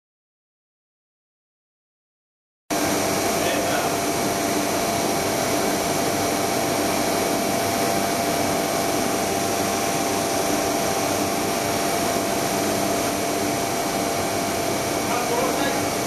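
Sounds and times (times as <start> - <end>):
machinery whirring hiss: 7.7 - 16.0.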